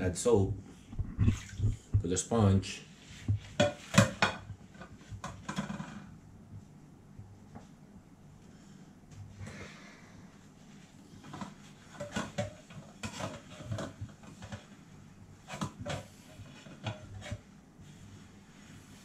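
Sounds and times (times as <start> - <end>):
dishes clinking in metal sink: 3.6 - 4.5.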